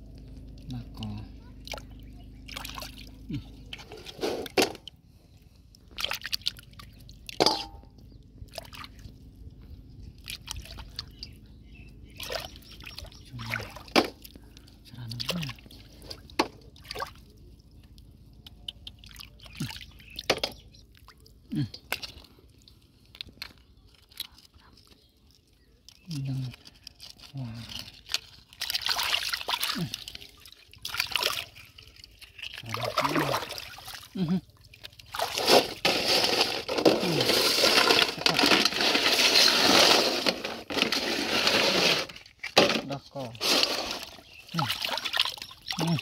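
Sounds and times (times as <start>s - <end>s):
wet mud drips and plops: 0.1s - 3.8s, 5.7s - 11.5s, 12.1s - 35.4s, 44.2s - 46.0s
shells clattering in steel basin: 7.4s - 7.9s, 35.3s - 44.3s.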